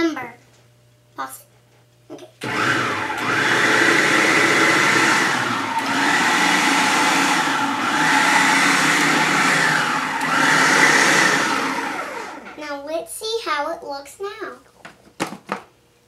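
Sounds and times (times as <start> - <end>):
food processor motor whirring: 2.4 - 12.6.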